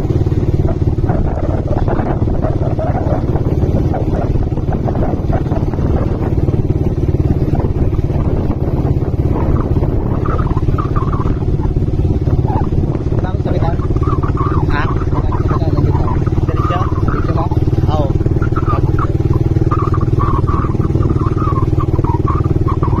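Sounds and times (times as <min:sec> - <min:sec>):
motorcycle engine and road drone: 0:00.0 - 0:23.0
wind rumble on microphone: 0:00.0 - 0:23.0.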